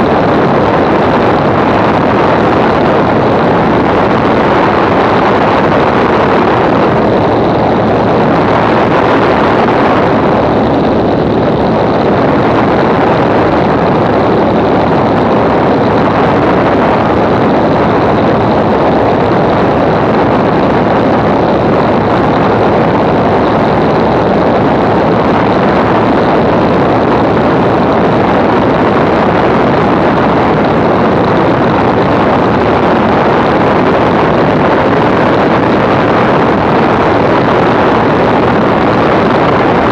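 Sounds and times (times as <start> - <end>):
aircraft engine running: 0.0 - 39.9
wind noise on microphone: 0.0 - 39.9.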